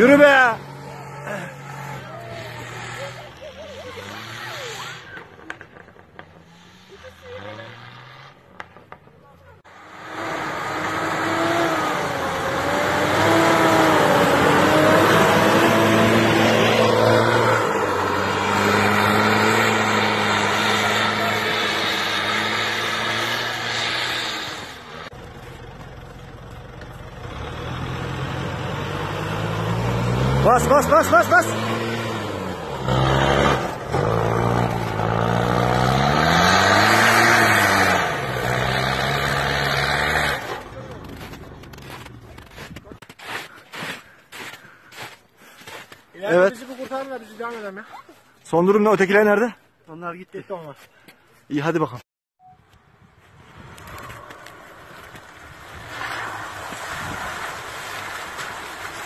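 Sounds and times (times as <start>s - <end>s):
tyres churning snow: 0.0s - 52.0s, 53.0s - 59.0s
pickup truck engine revving: 9.7s - 25.3s, 27.2s - 41.3s.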